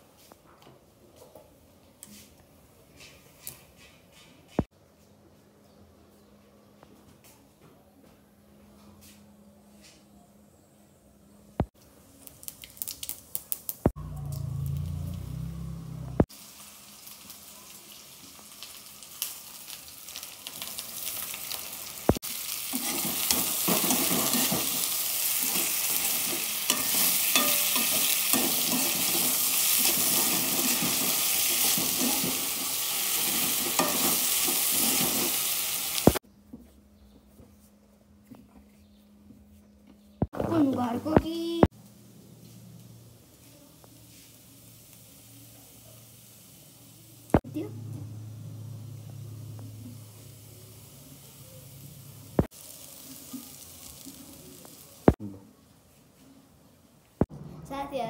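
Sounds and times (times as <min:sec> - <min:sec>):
low rumble: 0:13.9 - 0:16.3
potatoes sizzling in hot oil: 0:16.3 - 0:36.2, 0:43.3 - 0:47.4, 0:49.1 - 0:55.2
metal spatula stirring in wok: 0:25.4 - 0:35.3.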